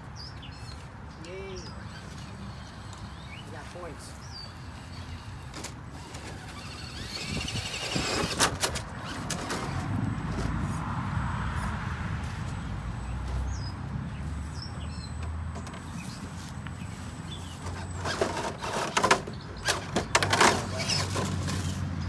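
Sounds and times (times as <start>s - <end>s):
birds chirping: 0.0s - 8.4s, 12.6s - 22.0s
electric motor and gearbox whining: 1.4s - 10.5s, 15.0s - 22.0s.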